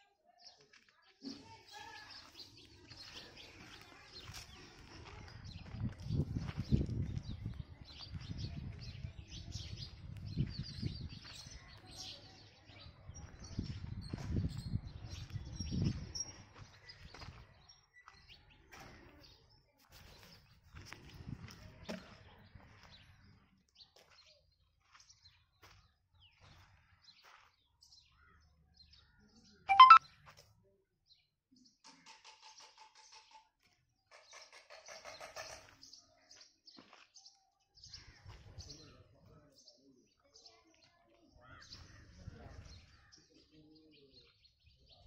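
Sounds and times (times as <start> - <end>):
small birds chirping: 0.3 - 30.0, 31.1 - 45.0
faint bird chirps: 29.7 - 30.0.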